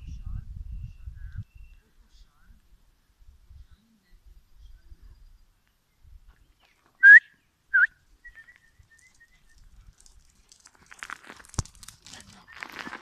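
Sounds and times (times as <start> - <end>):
loud human whistles: 7.0 - 9.5
dogs running over gravel: 8.3 - 13.0.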